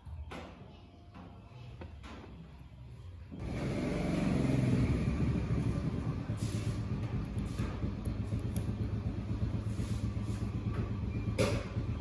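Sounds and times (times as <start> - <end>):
vehicle engine rumble: 3.4 - 12.0.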